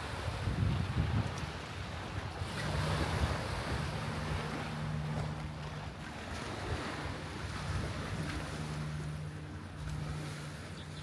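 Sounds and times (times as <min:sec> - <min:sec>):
low engine hum: 0:00.0 - 0:11.0
small waves washing onto sand: 0:00.0 - 0:11.0
wind buffeting microphone: 0:00.0 - 0:11.0.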